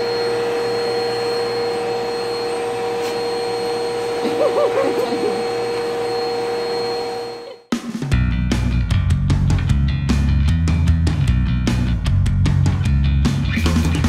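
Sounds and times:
vacuum cleaner whining: 0.0 - 7.7
music: 7.7 - 14.0.

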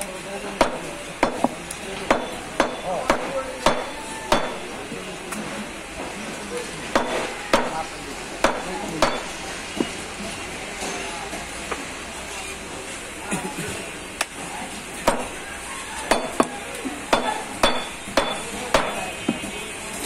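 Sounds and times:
knife chopping on wooden block: 17.1 - 19.4.

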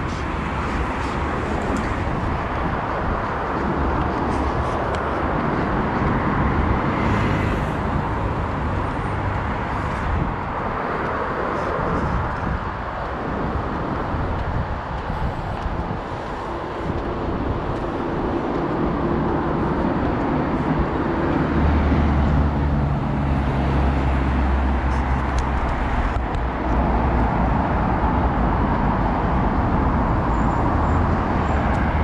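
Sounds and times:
heavy vehicle engine hum: 0.0 - 32.0
road traffic noise: 0.0 - 32.0.

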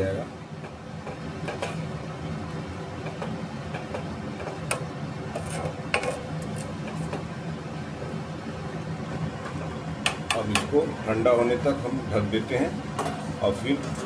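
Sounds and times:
steady low hum: 0.0 - 14.0
spoon stirring in a metal pot: 3.0 - 7.3.

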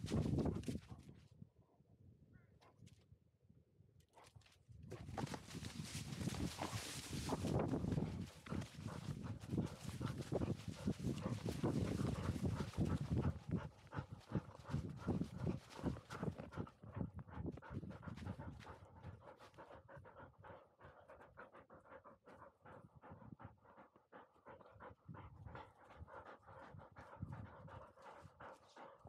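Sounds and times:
dog panting: 4.9 - 29.0.

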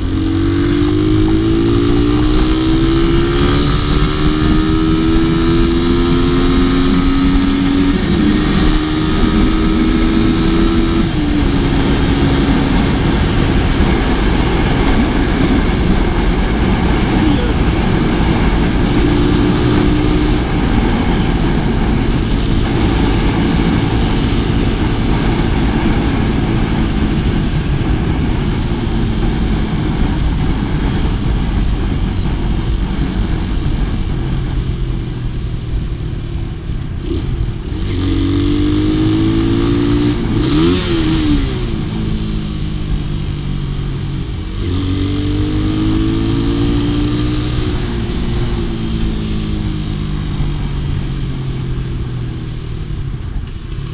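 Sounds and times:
motorcycle engine running: 0.0 - 53.9
wind noise on microphone: 0.0 - 53.9.

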